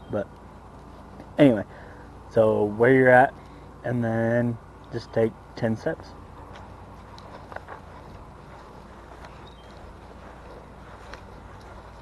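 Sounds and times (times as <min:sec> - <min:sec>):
low steady background noise: 0:00.0 - 0:12.0
footsteps on grass: 0:06.4 - 0:12.0.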